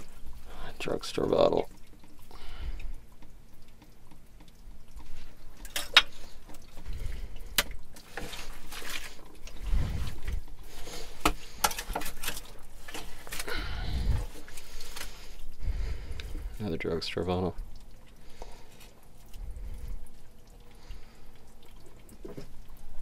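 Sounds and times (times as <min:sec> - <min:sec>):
tools and glass clicking and scraping: 0:05.6 - 0:06.2, 0:11.2 - 0:13.5.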